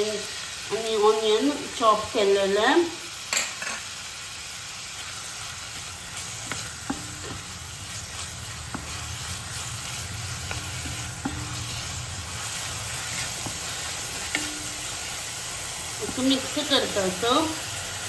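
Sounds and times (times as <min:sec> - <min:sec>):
onion sizzling in hot oil: 0:00.0 - 0:18.0
spatula scraping pan: 0:05.1 - 0:17.6
spatula knocking on pan: 0:06.5 - 0:07.5, 0:10.5 - 0:11.7, 0:13.4 - 0:14.9.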